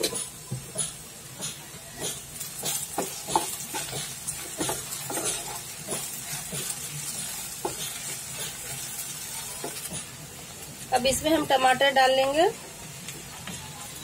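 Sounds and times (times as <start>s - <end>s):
spatula knocking against pan: 0.0s - 6.8s
vegetables sizzling in oil: 0.0s - 14.0s
spatula scraping frying pan: 2.1s - 10.2s.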